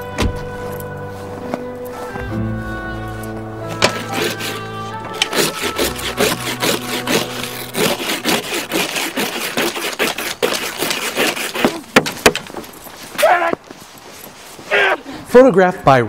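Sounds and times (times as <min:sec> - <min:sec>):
ice scraper scraping windshield: 0:03.7 - 0:13.3.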